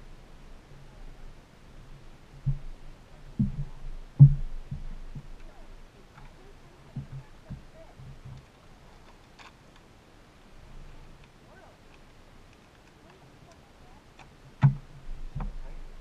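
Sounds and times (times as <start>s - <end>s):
light ticks: 11.1s - 14.8s.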